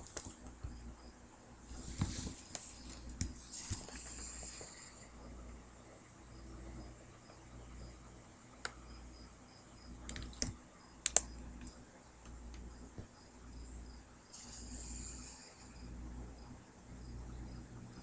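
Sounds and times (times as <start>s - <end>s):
sharp clicks: 10.0s - 12.7s.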